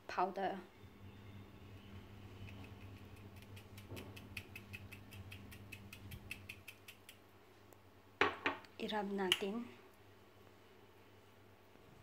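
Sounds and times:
spice shaker ticking: 2.4s - 7.3s.

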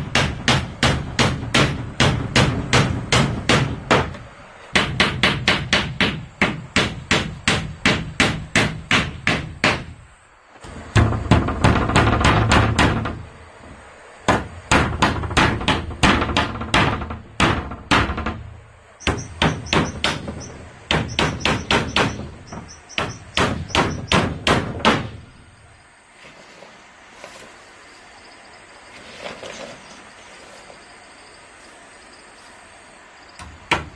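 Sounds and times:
hammer driving nails into wood: 0.0s - 4.2s, 4.8s - 10.0s, 14.3s - 18.4s, 19.0s - 25.2s.

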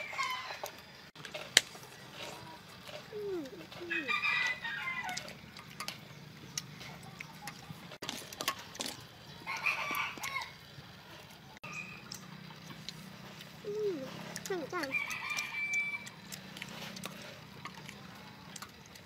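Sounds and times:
rooster crowing: 0.0s - 0.8s, 3.8s - 5.4s, 9.4s - 10.6s, 14.8s - 16.2s.

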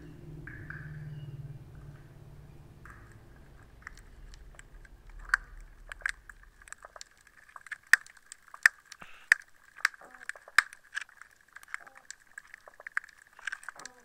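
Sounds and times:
faint steady hiss: 0.0s - 14.0s
underwater clicks and snaps: 2.8s - 14.0s.

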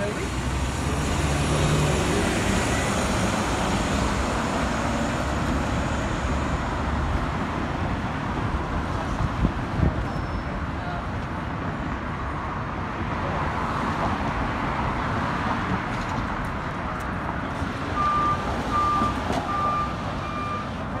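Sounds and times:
cars driving past: 0.0s - 9.9s
short electronic beeps: 18.0s - 20.7s.

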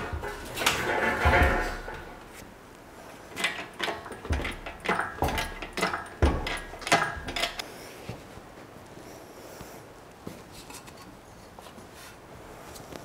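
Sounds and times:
knocks and clanks on metal frame: 0.0s - 2.6s, 3.3s - 7.6s.

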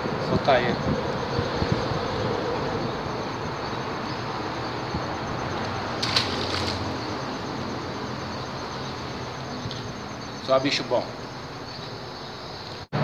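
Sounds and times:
traffic noise: 0.0s - 13.0s
fish splashing into water: 5.9s - 7.2s.

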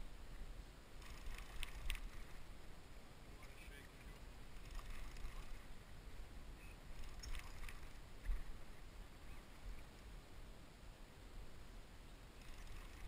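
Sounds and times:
wind on the microphone: 0.0s - 10.5s
faint clicks: 1.0s - 2.4s, 6.9s - 8.5s.

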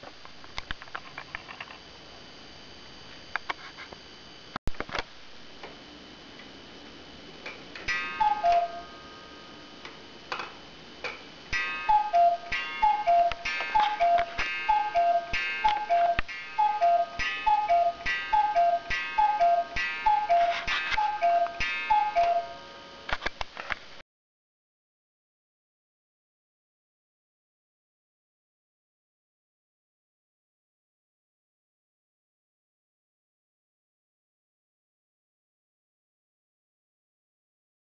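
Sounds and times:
cuckoo clock call: 7.8s - 9.5s, 11.5s - 23.2s
ringing strike: 7.9s - 9.7s, 11.5s - 23.1s.

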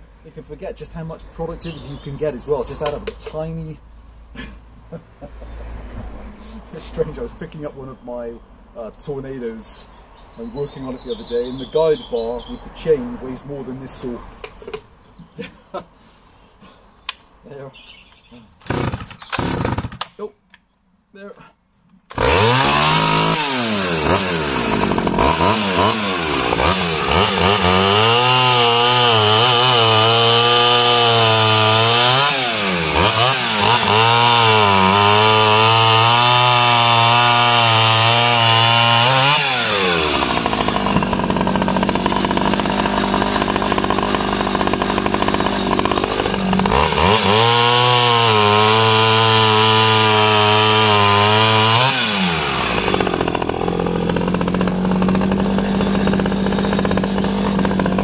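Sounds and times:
chainsaw revving and cutting log: 18.6s - 20.2s, 22.1s - 58.0s.

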